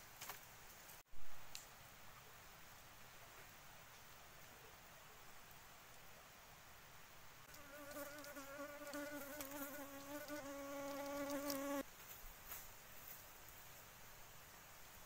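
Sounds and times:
fly buzzing: 0:07.5 - 0:11.8.

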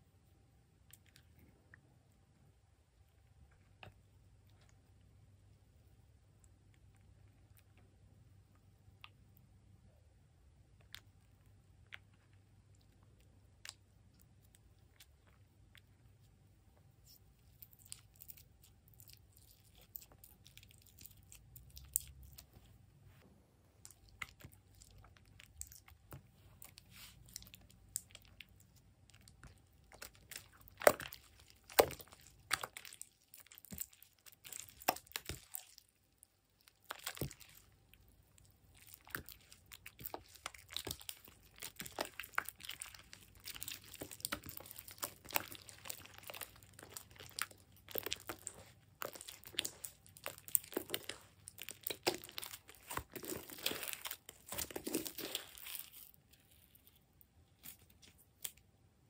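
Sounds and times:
slime wet pops and crackles: 0:23.8 - 0:56.2.

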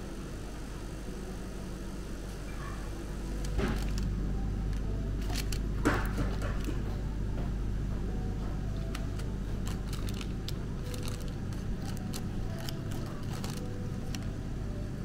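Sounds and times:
ventilation hum: 0:00.0 - 0:15.0
plastic sachets rustling and clicking: 0:03.3 - 0:06.8, 0:08.8 - 0:14.4.

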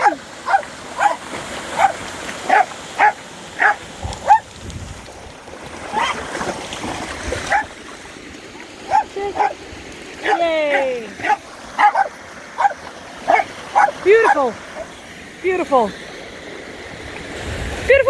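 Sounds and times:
dog barking high-pitched: 0:00.0 - 0:01.2, 0:01.8 - 0:04.5, 0:05.9 - 0:06.2, 0:07.5 - 0:07.7, 0:08.9 - 0:09.6, 0:10.2 - 0:14.9
small waterfall rushing: 0:00.0 - 0:18.0.

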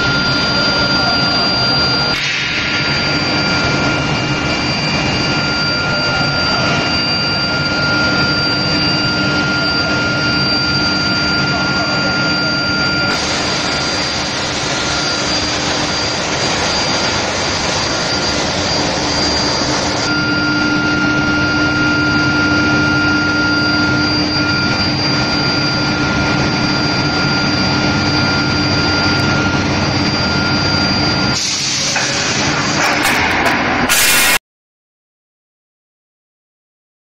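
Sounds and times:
steady high tones: 0:00.0 - 0:31.9
loud machine noise: 0:00.0 - 0:34.4.

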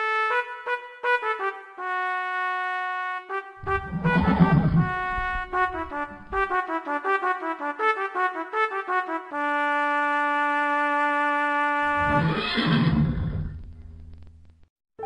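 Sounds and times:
brass fanfare: 0:00.0 - 0:12.2
horse whinnying: 0:03.6 - 0:06.4, 0:11.9 - 0:13.6.

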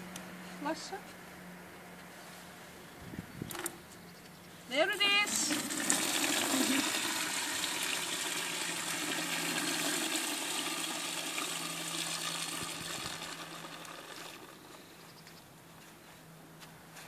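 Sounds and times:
horse urinating into bucket: 0:05.0 - 0:14.7.

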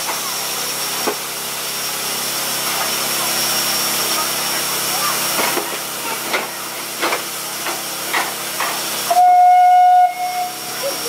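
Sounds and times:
locomotive chuffs: 0:00.0 - 0:11.0
steam locomotive hissing steam: 0:00.0 - 0:11.0
steam whistle blast: 0:09.1 - 0:10.8.

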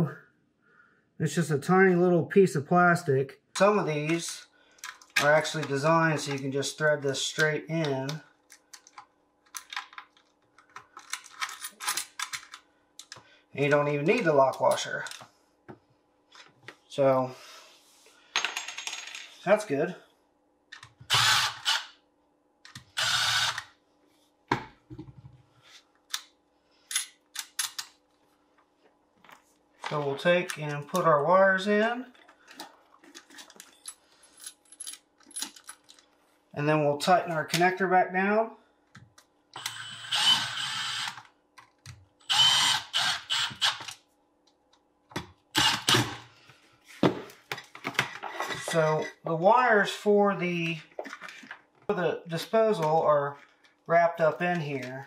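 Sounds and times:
small metal parts rattling: 0:08.8 - 0:12.6, 0:32.1 - 0:36.1
cordless power driver: 0:21.0 - 0:21.9, 0:22.8 - 0:23.7, 0:39.6 - 0:41.2, 0:42.2 - 0:43.9, 0:45.6 - 0:46.2.

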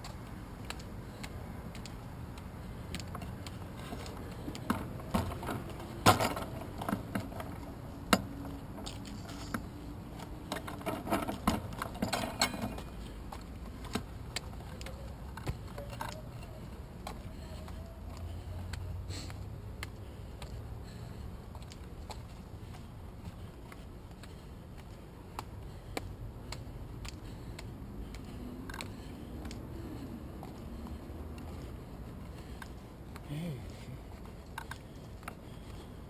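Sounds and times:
bicycle rattling and clunking: 0:03.1 - 0:14.1.

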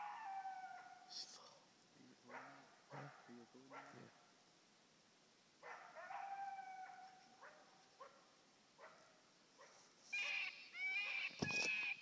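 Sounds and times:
coyote barking: 0:00.0 - 0:01.2, 0:02.0 - 0:04.4, 0:05.6 - 0:12.0
coyote howling: 0:00.0 - 0:01.2, 0:05.7 - 0:08.2, 0:10.2 - 0:12.0.

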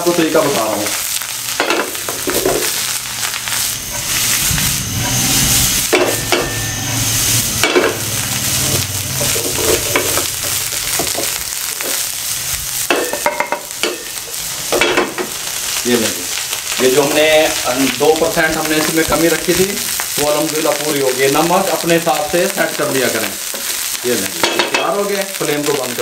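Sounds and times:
fried rice sizzling in a pan: 0:00.0 - 0:26.0
spatula scraping and knocking pan: 0:07.6 - 0:08.0, 0:12.9 - 0:14.1, 0:14.7 - 0:15.4.

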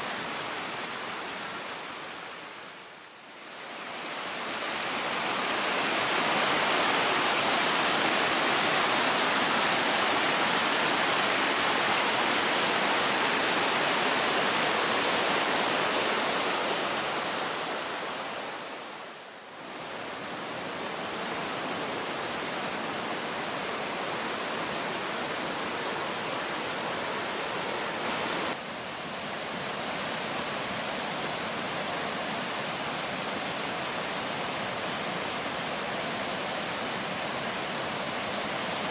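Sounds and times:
water rushing over rock ledges: 0:00.0 - 0:38.9.

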